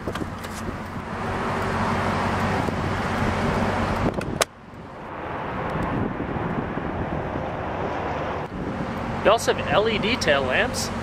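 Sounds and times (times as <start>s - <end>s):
wind rushing across microphone: 2.6s - 9.8s.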